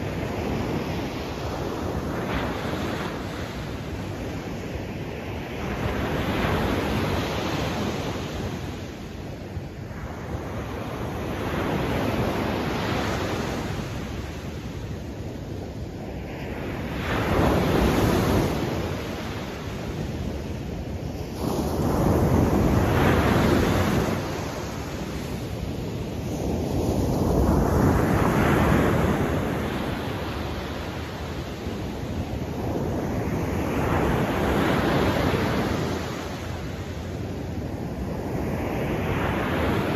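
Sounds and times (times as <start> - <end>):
ocean waves breaking on beach: 0.0 - 39.9.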